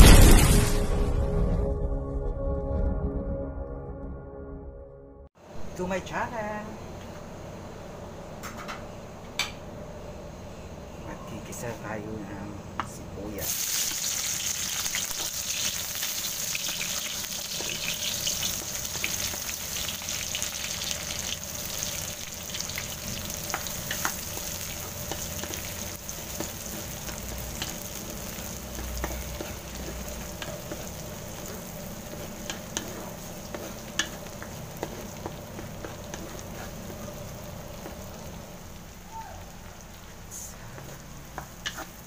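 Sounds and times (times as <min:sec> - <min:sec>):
onions sizzling in hot oil: 0:13.3 - 0:42.0
wooden spatula scraping pan: 0:24.8 - 0:38.1, 0:40.8 - 0:42.0.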